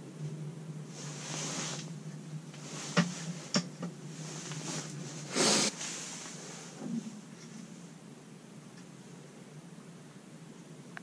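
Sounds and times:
steady low hum: 0.0 - 11.0
clothing and gear rustling: 0.9 - 1.9, 2.6 - 7.6.

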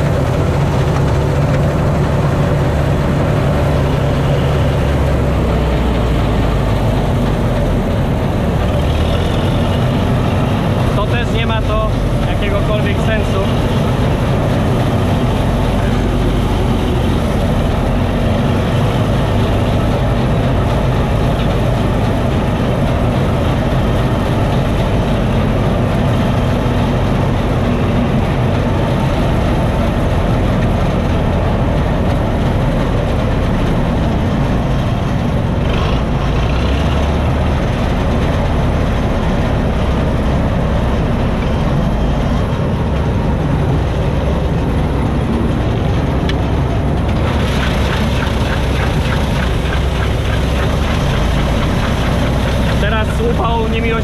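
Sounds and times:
combine harvester running: 0.0 - 54.0.

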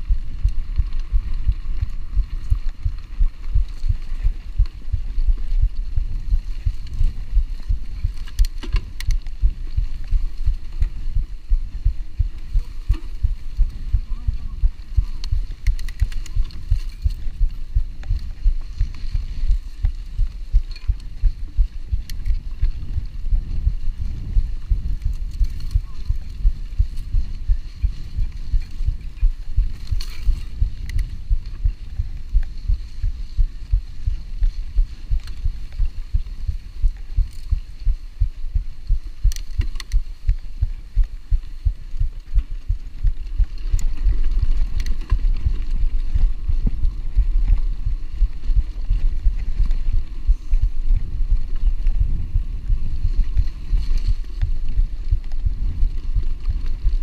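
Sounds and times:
sharp clicks: 15.2 - 17.2.

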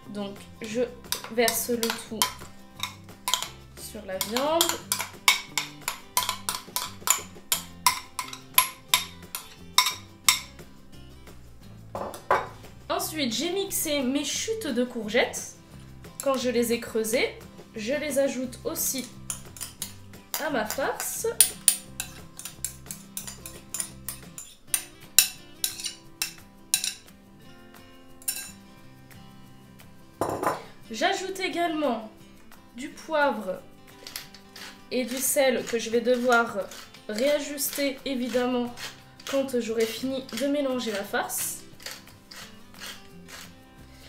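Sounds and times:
background music: 0.0 - 44.0
spoon clinking glass bowl: 1.1 - 3.6, 4.2 - 10.6, 19.0 - 27.1, 28.2 - 28.6, 30.2 - 30.7, 34.0 - 43.5.

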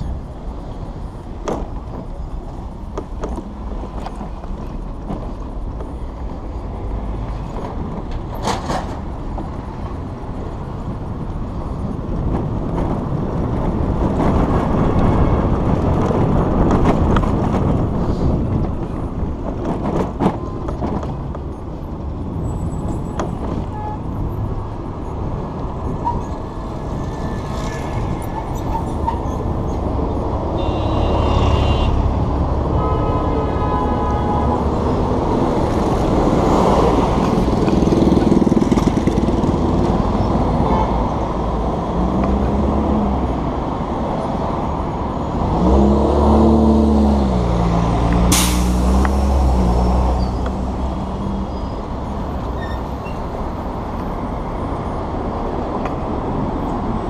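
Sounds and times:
vehicle engines rumbling: 0.0 - 57.0
heavy vehicle pulling away: 45.4 - 52.4
sharp hiss: 48.3 - 48.9.

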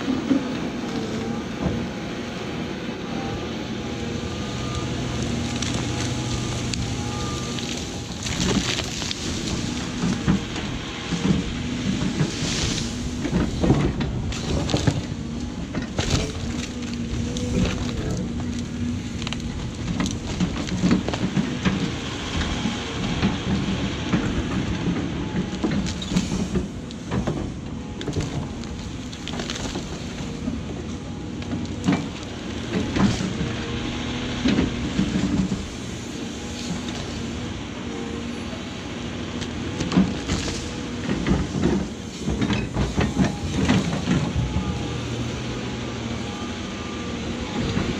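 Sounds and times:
excavator diesel engine running: 0.0 - 47.9
bucket knocking and cracking stump: 5.5 - 30.2.

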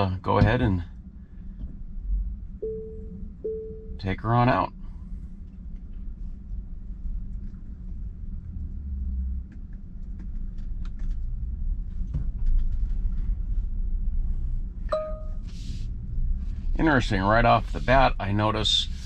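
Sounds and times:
car rolling low rumble: 0.0 - 19.0
two-tone electronic chime: 2.6 - 4.0, 14.9 - 15.4.

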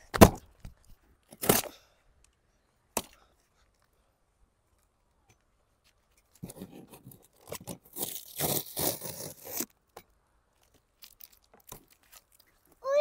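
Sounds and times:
packing tape ripped off box: 1.3 - 1.8, 6.4 - 9.8.

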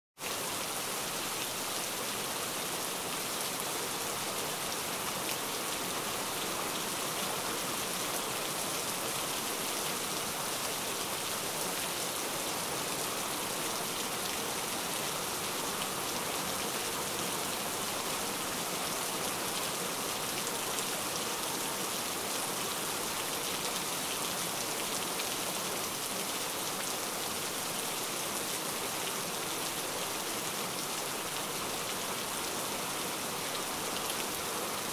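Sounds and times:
steady rain: 0.2 - 34.9.

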